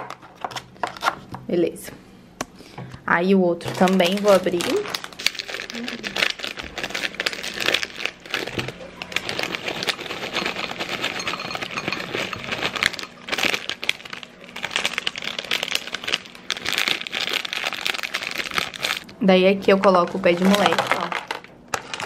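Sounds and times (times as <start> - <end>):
plastic bag crinkling: 3.6 - 19.1, 19.8 - 22.0
snack pieces rattling into bowl: 3.7 - 19.1, 20.3 - 22.0.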